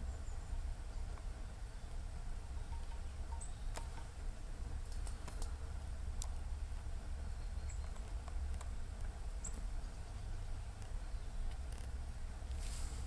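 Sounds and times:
squirrel claws scratching log: 10.7s - 12.0s.

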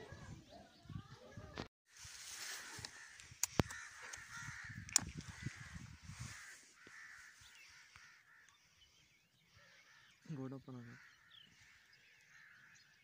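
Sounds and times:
crows cawing: 2.3s - 13.0s
sharp clicks: 2.8s - 5.4s.

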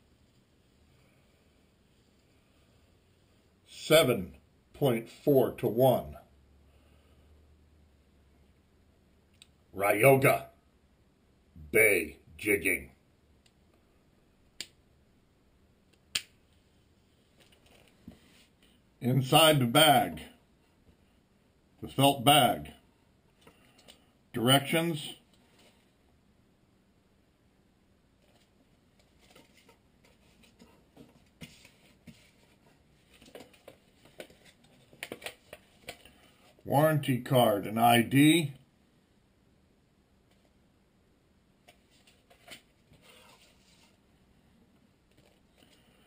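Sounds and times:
paper rustling and crinkling: 28.2s - 36.6s, 41.7s - 44.0s.

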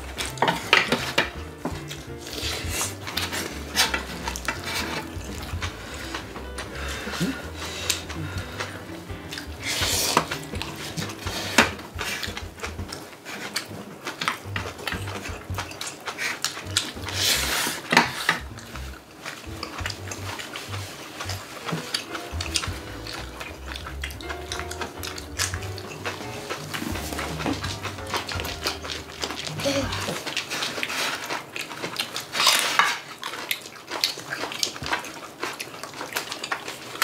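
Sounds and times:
eating noises: 0.0s - 37.0s
chopsticks clicking against bowls: 0.1s - 36.8s.

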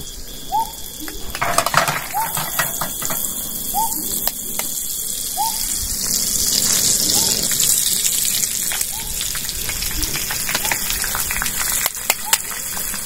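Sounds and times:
oil sizzling in a frying pan: 0.8s - 13.0s
eggs cracking taps and clicks: 8.6s - 13.0s.

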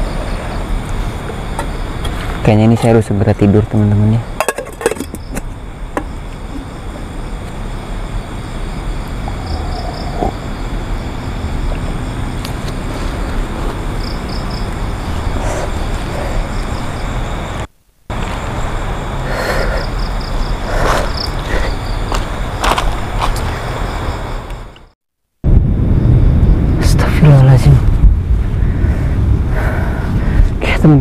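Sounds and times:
insect chirps: 0.0s - 31.0s
steady rushing noise: 25.4s - 31.0s.

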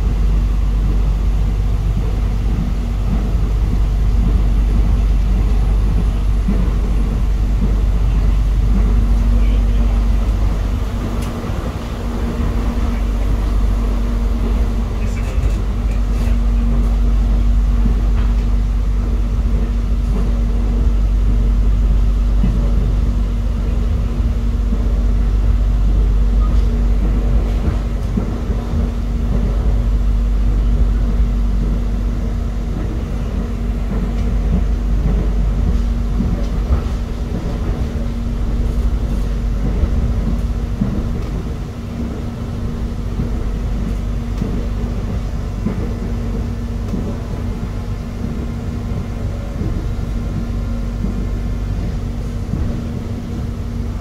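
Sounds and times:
constant hum: 0.0s - 54.0s
train wheels rumbling: 0.0s - 54.0s.

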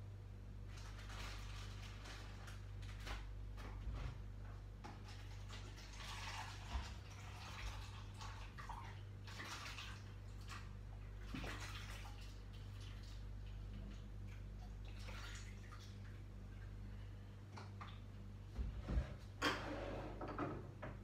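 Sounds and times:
steady low hum: 0.0s - 21.0s
water pouring into cup: 5.5s - 10.0s.

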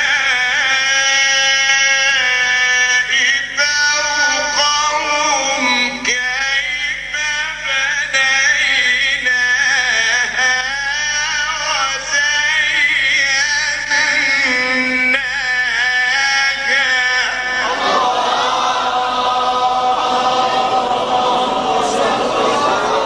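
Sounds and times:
man chanting melodically: 0.0s - 23.0s.

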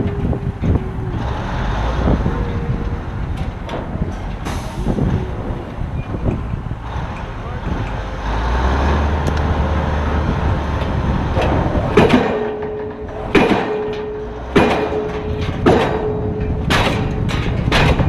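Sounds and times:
low rumble: 0.0s - 18.0s
pile hammer blows: 10.8s - 18.0s.

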